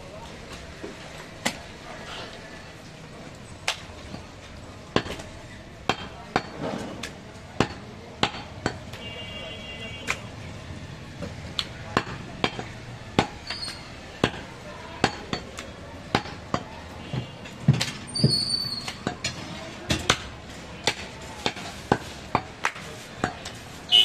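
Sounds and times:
cleaver chopping meat on wood: 0:05.0 - 0:09.0, 0:11.6 - 0:18.0, 0:19.9 - 0:23.5.

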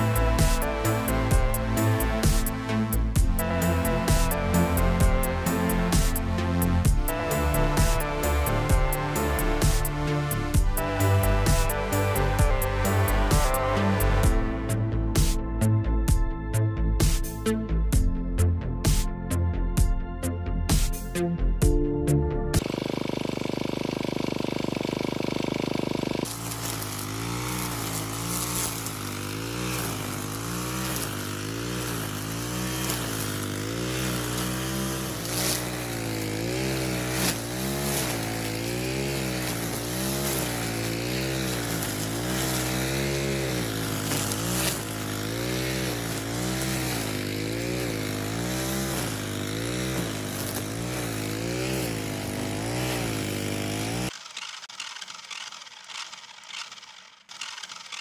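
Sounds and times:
electric motor buzzing whine: 0:22.6 - 0:58.0.

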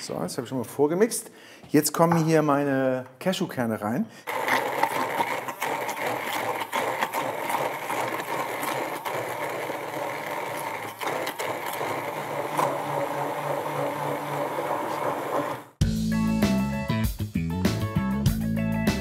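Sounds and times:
immersion blender motor hum: 0:04.3 - 0:15.8.

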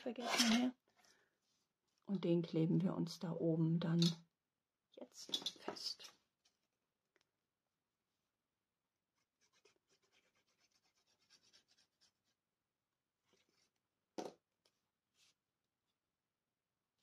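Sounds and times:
glue nozzle scratching on paper: 0:09.4 - 0:12.3.

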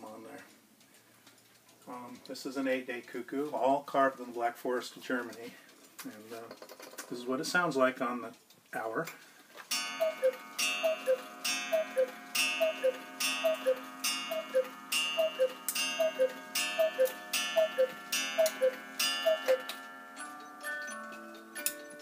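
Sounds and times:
cuckoo clock call: 0:09.7 - 0:22.0
music box melody: 0:09.7 - 0:22.0.

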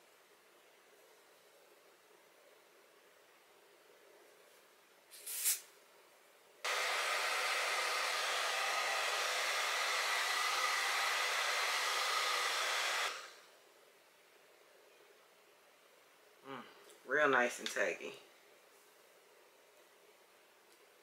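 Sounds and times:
aerosol spray hiss: 0:05.1 - 0:05.7, 0:06.7 - 0:13.4
hair dryer blowing: 0:06.7 - 0:13.4.

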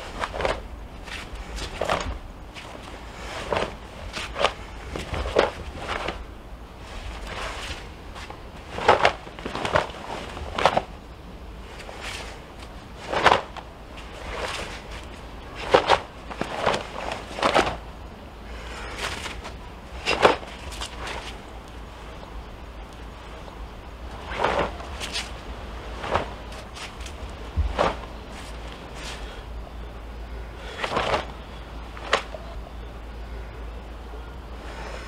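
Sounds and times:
bare feet on stone: 0:00.0 - 0:06.2, 0:06.8 - 0:10.9, 0:11.7 - 0:17.9, 0:18.6 - 0:21.5, 0:24.1 - 0:29.4, 0:30.7 - 0:31.4, 0:32.0 - 0:32.4
low steady rumble: 0:00.0 - 0:35.0
uniform fabric snapping: 0:08.7 - 0:10.9, 0:13.0 - 0:13.6, 0:32.0 - 0:32.3.

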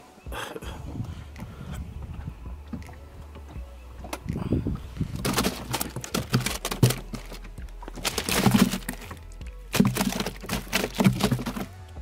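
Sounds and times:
plastic ice chest opening: 0:05.0 - 0:11.8
fish dropped onto ice: 0:05.1 - 0:11.8.

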